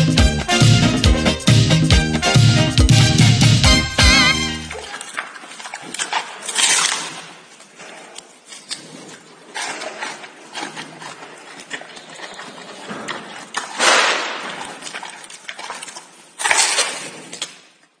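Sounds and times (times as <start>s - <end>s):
panda chewing and crunching food: 3.7s - 18.0s.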